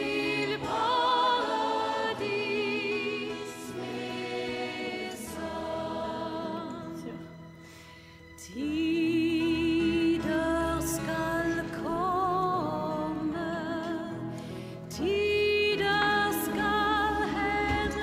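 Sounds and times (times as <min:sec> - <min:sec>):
voices singing held notes: 0:00.0 - 0:07.2.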